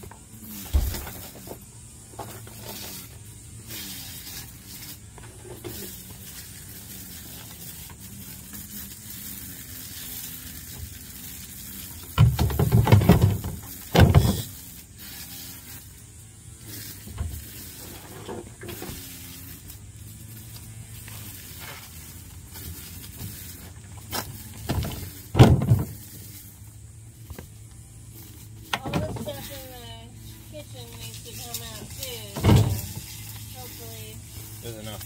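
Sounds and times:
hollow plastic knocks and thumps: 12.2s - 14.5s, 24.6s - 26.0s.

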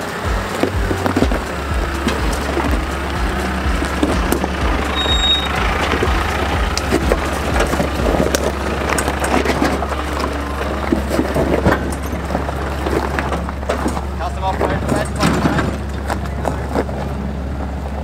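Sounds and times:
thumping background music: 0.0s - 14.1s
low vehicle rumble: 0.0s - 18.0s
rocks crunching under tyres: 0.0s - 18.0s.

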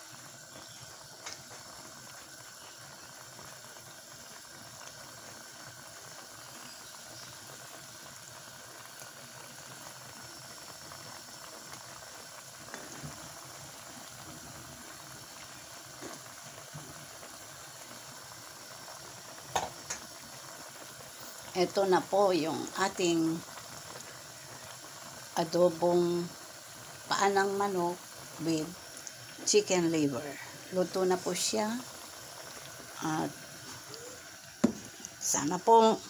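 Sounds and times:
sauce bubbling in a pan: 0.0s - 36.0s
faint pops: 33.6s - 35.2s.

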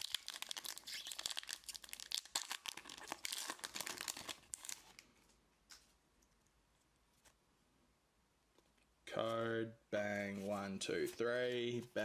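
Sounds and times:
foil wrapper crinkling and tearing: 0.0s - 5.0s.

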